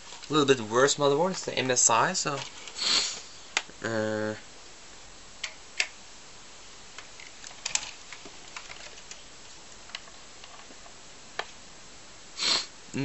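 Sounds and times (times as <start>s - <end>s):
computer parts clicking: 7.2s - 9.2s.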